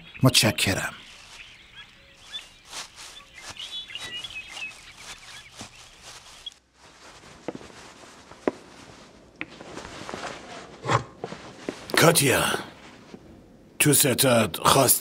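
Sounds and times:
small birds chirping: 0.0 - 9.1
footsteps: 1.0 - 13.3.

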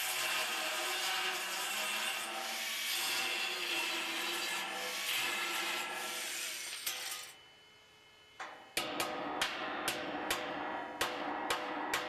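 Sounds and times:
angle grinder cutting steel: 0.0 - 7.4
faint steady tones: 7.2 - 9.1
sharp knocks: 8.8 - 12.0.

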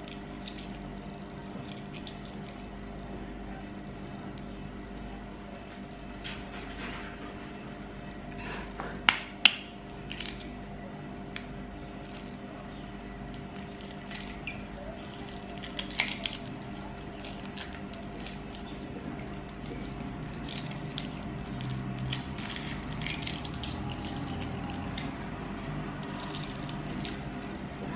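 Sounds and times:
steady hum: 0.0 - 27.9
egg shell cracking: 9.1 - 10.6, 13.3 - 25.2, 26.0 - 27.3
small crackles of shell breaking: 9.1 - 10.6, 11.3 - 12.4, 13.3 - 25.1, 26.0 - 27.3.

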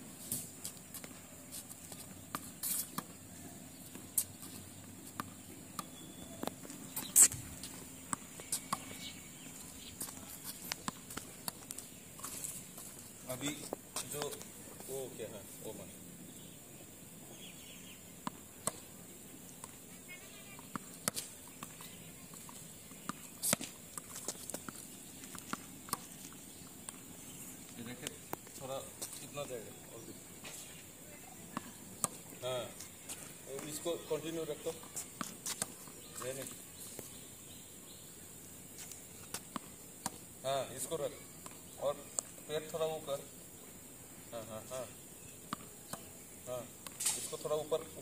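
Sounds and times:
tennis balls bouncing on court: 0.6 - 15.2, 18.1 - 30.6, 31.2 - 37.2, 38.8 - 43.3, 44.4 - 48.0
tennis ball bouncing: 3.9 - 12.9, 18.2 - 18.9, 19.5 - 27.1, 39.3 - 40.2, 45.5 - 46.1
racket hitting tennis ball: 23.0 - 24.8, 46.8 - 47.4.

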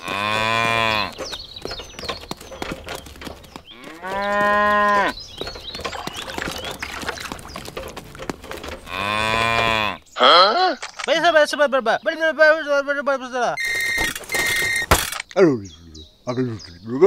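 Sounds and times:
cow mooing: 0.0 - 1.3, 3.7 - 5.6, 8.6 - 10.5
faint clicks and crackles: 0.0 - 9.8.

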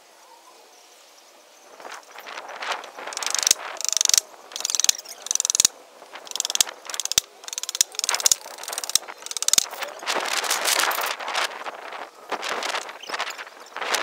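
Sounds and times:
hand tool rasping wood: 3.2 - 9.8.

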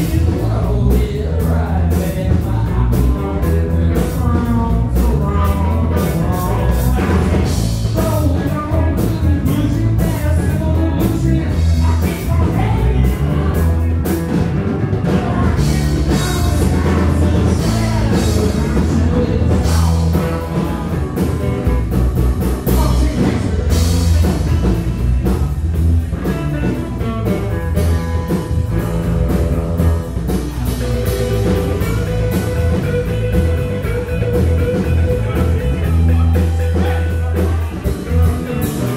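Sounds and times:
bass guitar: 0.0 - 38.9
drum kit with cymbals: 0.0 - 38.9
electric guitar: 0.0 - 38.9.

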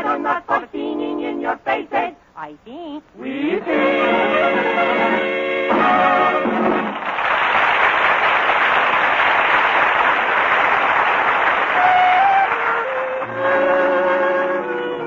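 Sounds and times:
orchestra music: 3.7 - 7.0, 11.7 - 15.0
studio audience applauding: 6.6 - 13.3.

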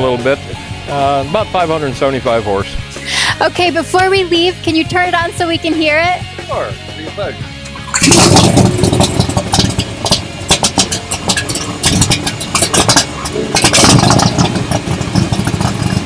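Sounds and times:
loud car engine revving: 7.7 - 16.0.

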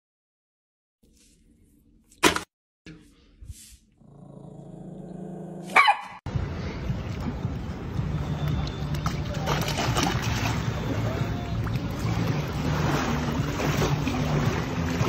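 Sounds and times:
small dog growling: 4.0 - 5.7
small dog barking sharply: 5.7 - 6.2.

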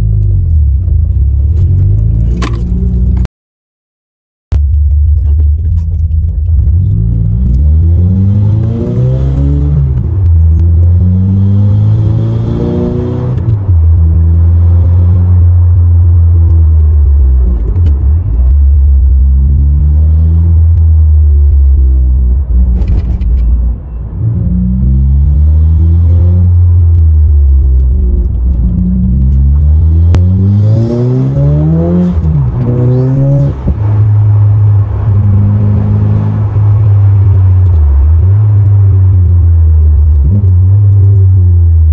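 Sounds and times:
car engine accelerating: 4.6 - 41.9.

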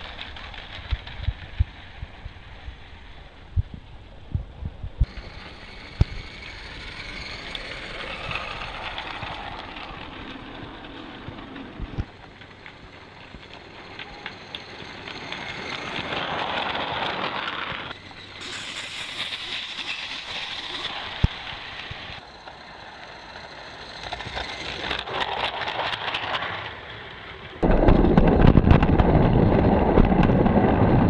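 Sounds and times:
wheels clicking on rails: 0.0 - 31.0
steam locomotive hiss: 18.1 - 22.1.

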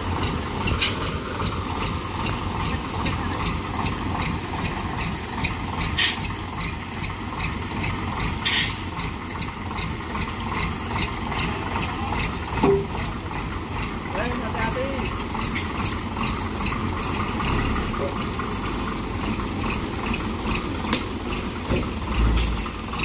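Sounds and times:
diesel truck engine running: 0.0 - 23.0
short air hisses: 8.4 - 8.8.

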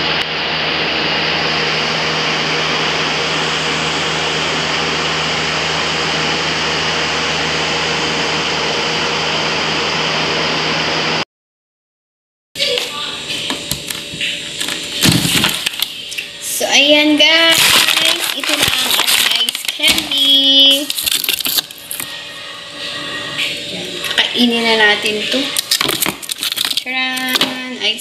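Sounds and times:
low hum: 14.2 - 26.9.

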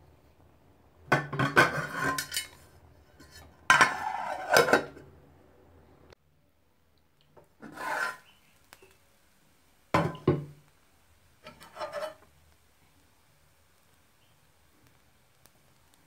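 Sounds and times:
pot lid scraping: 1.2 - 2.6, 3.2 - 5.0, 7.6 - 8.3, 11.4 - 12.2.

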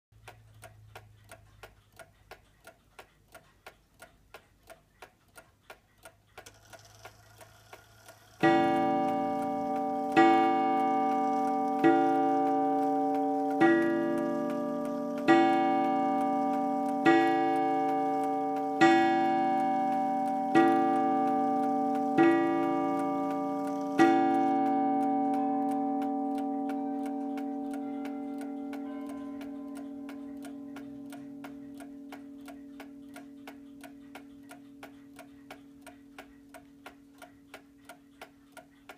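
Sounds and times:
clock ticking: 0.1 - 38.9
faint clock whir: 0.2 - 38.9
clock striking wire gong: 8.4 - 37.1.

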